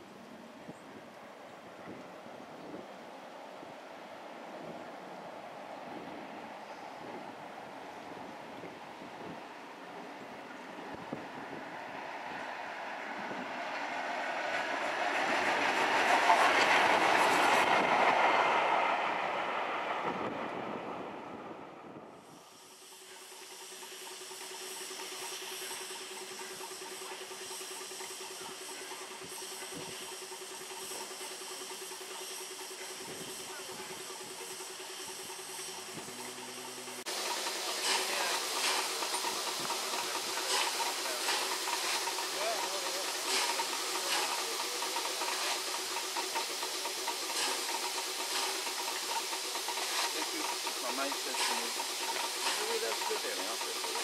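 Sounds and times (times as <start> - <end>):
passing train: 0.0 - 54.0
steam hissing: 4.4 - 54.0
faint rapid pulsing: 21.5 - 54.0.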